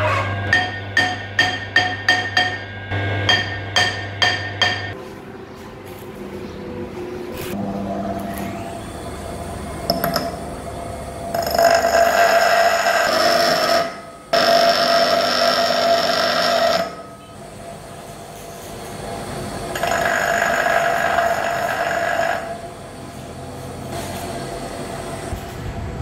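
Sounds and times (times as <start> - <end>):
metal grinding screech: 11.3 - 17.3, 19.7 - 22.7
bench grinder motor running: 19.8 - 22.7.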